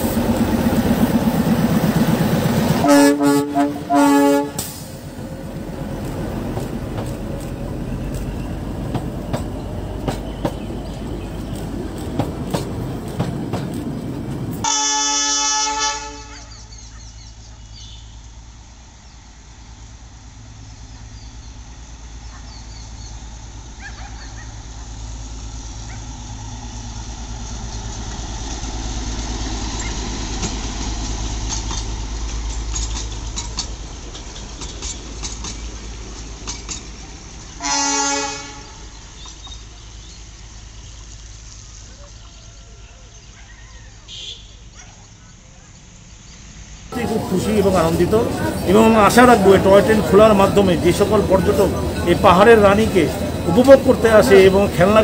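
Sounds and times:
rail clatter: 0:00.0 - 0:15.3, 0:23.4 - 0:41.8, 0:46.9 - 0:55.0
diesel engine hum: 0:00.0 - 0:44.0, 0:44.6 - 0:55.0
locomotive horn blasts: 0:02.8 - 0:04.9, 0:14.6 - 0:16.7, 0:37.6 - 0:38.9, 0:44.1 - 0:44.7.

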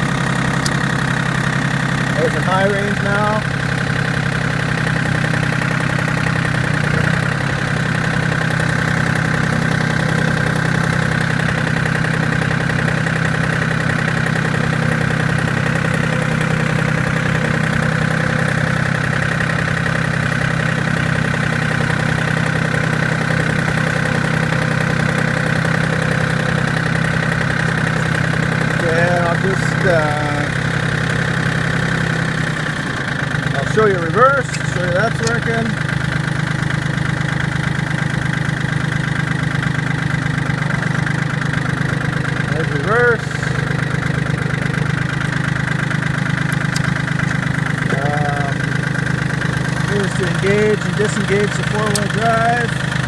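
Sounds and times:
tractor diesel engine running: 0:00.0 - 0:53.0.

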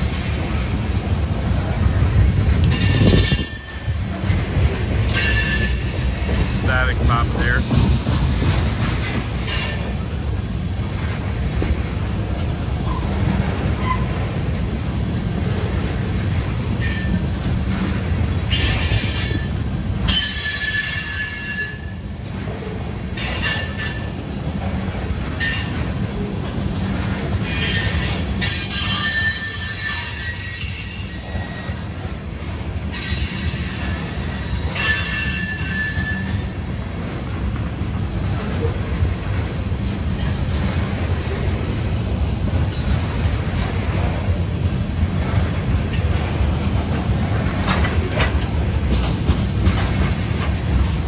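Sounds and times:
train wheels rumbling on track: 0:00.0 - 0:51.0
wheels squealing: 0:02.6 - 0:06.8, 0:12.8 - 0:14.4, 0:16.8 - 0:17.4, 0:18.5 - 0:22.0, 0:27.1 - 0:32.0, 0:32.9 - 0:36.6.

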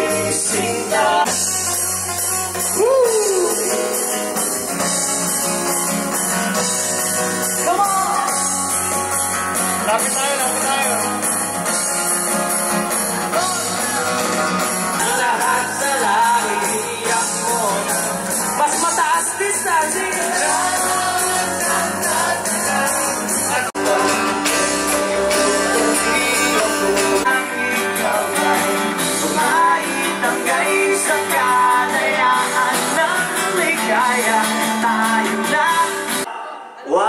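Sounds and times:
live rock band with singing: 0:00.0 - 0:37.0.

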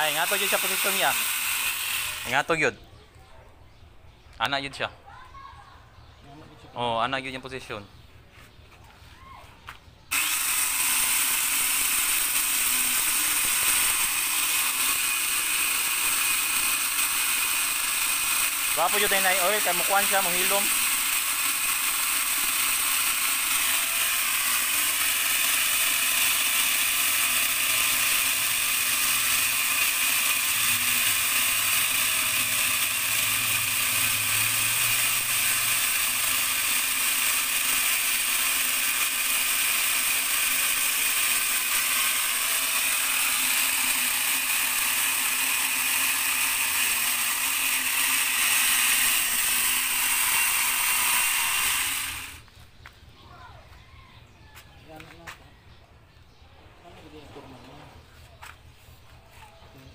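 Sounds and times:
grinder chain cutting tree trunk: 0:00.0 - 0:02.6, 0:10.1 - 0:52.5.

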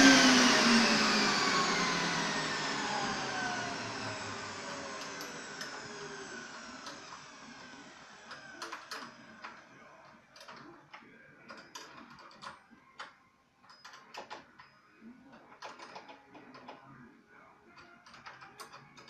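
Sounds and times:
turbine motor winding down: 0:00.0 - 0:08.6.

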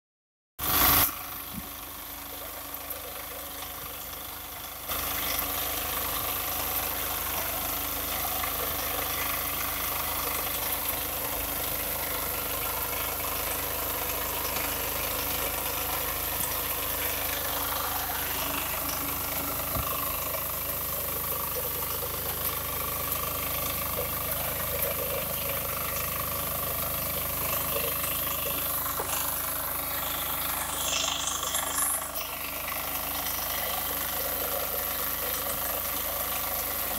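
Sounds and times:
reaper engine running: 0:00.6 - 0:36.9
cutter bar cutting crop: 0:27.5 - 0:32.6.

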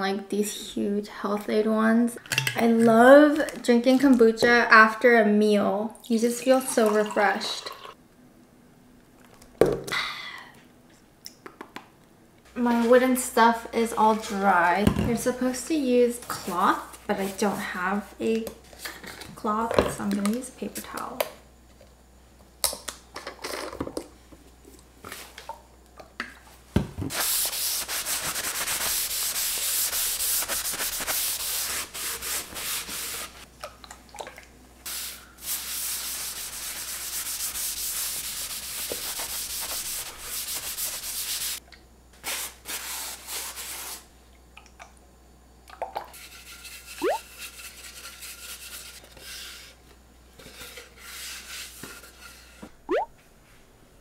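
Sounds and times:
paper towel rubbing wooden board: 0:27.1 - 0:33.4, 0:35.4 - 0:41.6.

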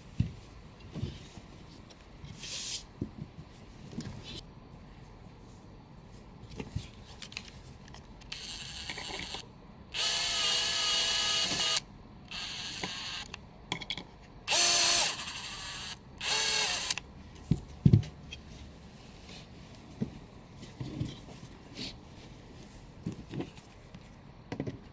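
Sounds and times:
cordless drill motor whine: 0:08.3 - 0:09.4, 0:10.0 - 0:13.4, 0:14.5 - 0:17.0.

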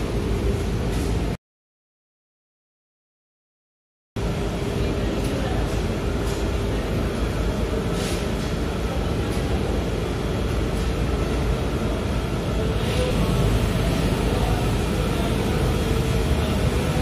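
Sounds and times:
machinery low rumble: 0:08.4 - 0:17.0.

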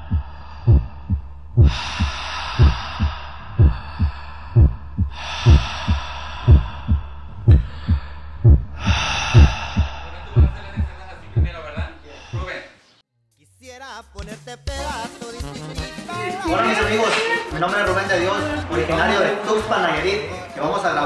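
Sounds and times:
heartbeat thumps: 0:00.0 - 0:12.6
long hissing breaths: 0:00.0 - 0:12.9.

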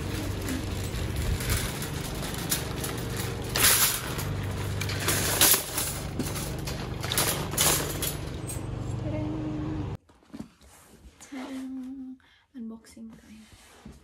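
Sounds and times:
trolleys clanking together: 0:00.0 - 0:09.1
shopping trolley rattling on asphalt: 0:00.0 - 0:09.2.

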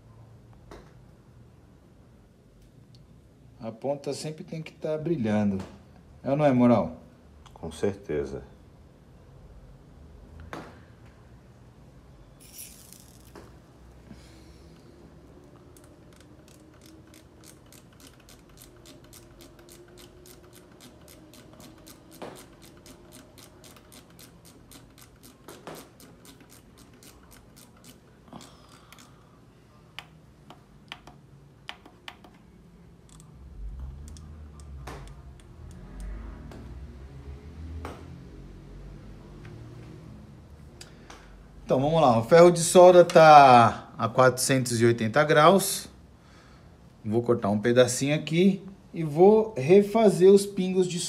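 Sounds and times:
tools clicking and tapping: 0:15.4 - 0:29.1, 0:30.0 - 0:36.8.

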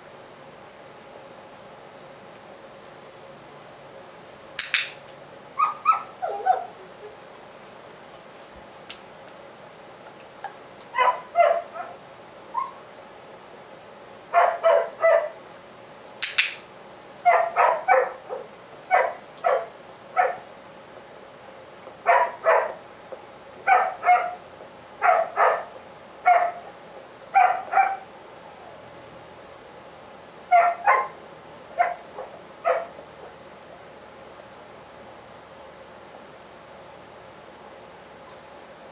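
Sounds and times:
dog barking: 0:05.6 - 0:06.8, 0:11.0 - 0:12.0, 0:14.3 - 0:15.4, 0:17.2 - 0:20.4, 0:22.1 - 0:22.8, 0:23.7 - 0:24.4, 0:25.0 - 0:26.6, 0:27.4 - 0:28.1, 0:30.5 - 0:31.2, 0:31.8 - 0:33.0.

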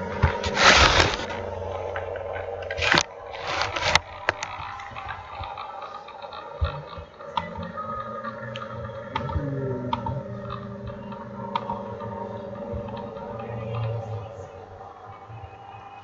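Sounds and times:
brief rustling: 0:00.0 - 0:05.1
low room hum: 0:00.0 - 0:16.0.

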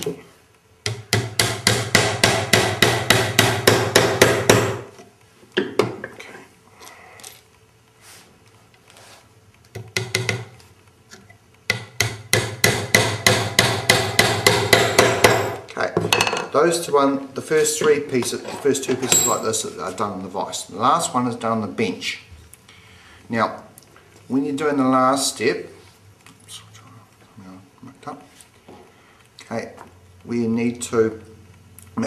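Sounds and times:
hammer tapping pins into wood: 0:00.8 - 0:04.9, 0:09.7 - 0:10.6, 0:11.7 - 0:16.5.

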